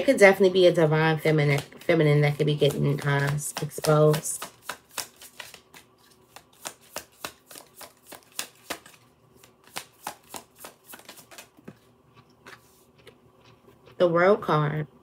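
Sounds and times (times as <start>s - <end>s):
cards being shuffled: 1.5s - 11.9s.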